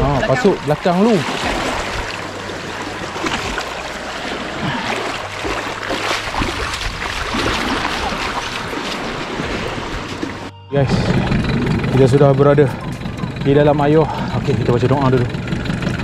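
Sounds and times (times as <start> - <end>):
seawater splashing from wading: 0.0 - 10.5
waves lapping against boat: 0.0 - 10.5.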